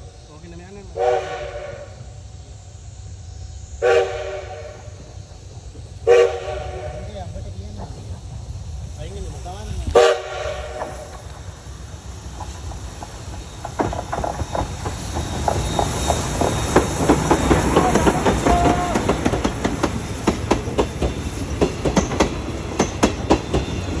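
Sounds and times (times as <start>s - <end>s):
steam train passing: 0.0s - 24.0s
wheels clacking over rail joints: 7.3s - 24.0s
wheel squeal: 12.4s - 24.0s.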